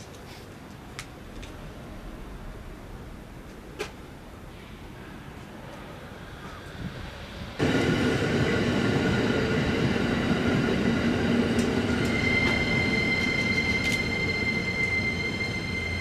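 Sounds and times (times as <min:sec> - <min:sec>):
train wheels rumbling on rails: 0:00.1 - 0:16.0
high squeal: 0:09.2 - 0:16.0.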